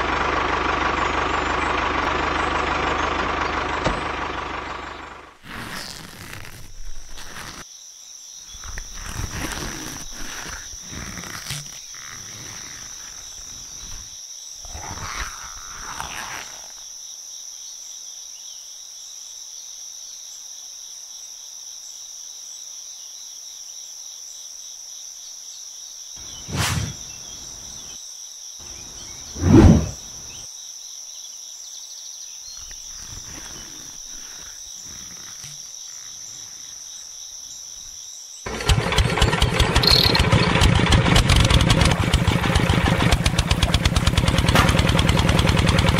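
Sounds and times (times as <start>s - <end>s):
diesel water pump clattering: 0.0s - 5.4s, 38.5s - 45.9s.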